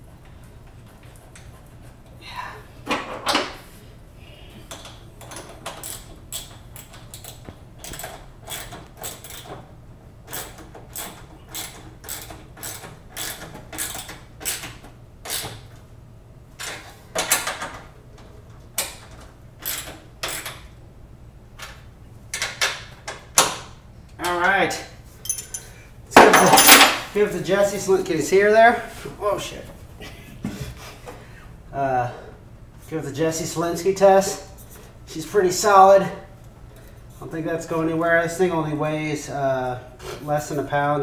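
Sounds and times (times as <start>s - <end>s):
hand tools clicking and rattling: 4.7s - 9.6s, 25.2s - 27.0s.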